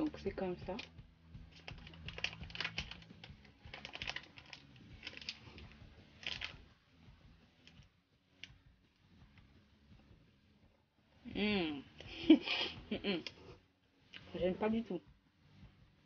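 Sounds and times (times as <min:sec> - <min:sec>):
foil wrapper crinkling: 0:01.5 - 0:06.6.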